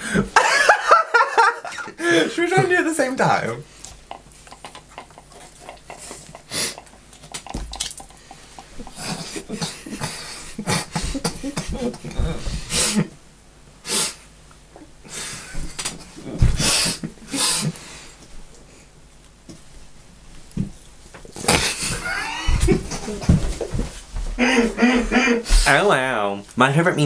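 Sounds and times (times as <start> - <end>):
people laughing: 0.1 - 2.3, 9.2 - 13.1, 21.5 - 23.5, 24.4 - 25.6
people drinking from paper cups: 3.7 - 13.1
people spluttering and coughing: 4.1 - 8.1, 8.7 - 13.1, 21.4 - 23.4.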